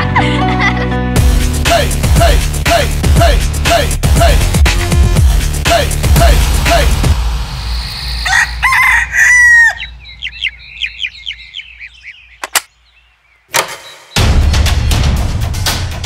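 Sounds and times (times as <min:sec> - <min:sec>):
music: 0:00.0 - 0:07.7, 0:14.2 - 0:16.0
cartoon rooster crowing: 0:08.1 - 0:10.1
short high clucking calls: 0:08.8 - 0:12.7
sharp click: 0:12.4 - 0:12.7, 0:13.5 - 0:14.0.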